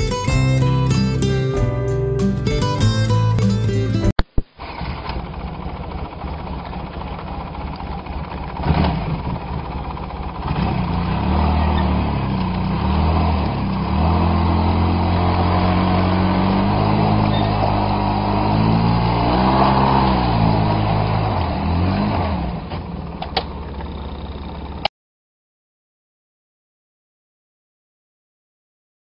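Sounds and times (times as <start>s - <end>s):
atv engine revving under load: 4.6s - 24.9s.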